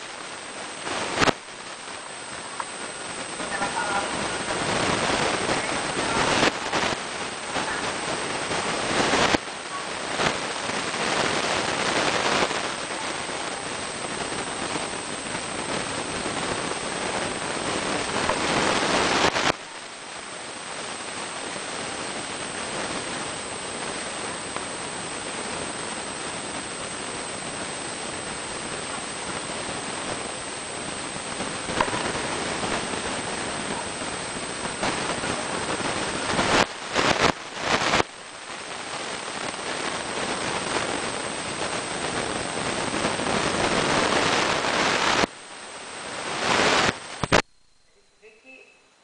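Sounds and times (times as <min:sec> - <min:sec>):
recording hiss: 0:00.0 - 0:49.0
high-pitched whine: 0:40.8 - 0:49.0.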